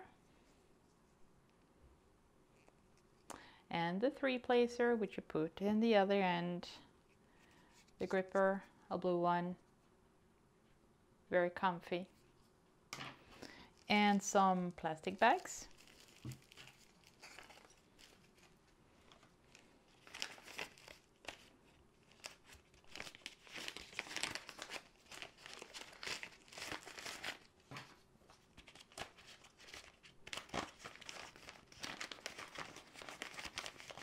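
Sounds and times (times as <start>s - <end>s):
plastic bags crinkling: 15.0s - 27.5s, 28.6s - 34.0s.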